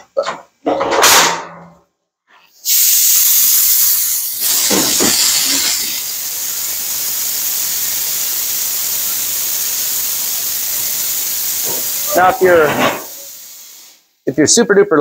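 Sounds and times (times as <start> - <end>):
compressed air hissing from valve: 2.4 - 14.3.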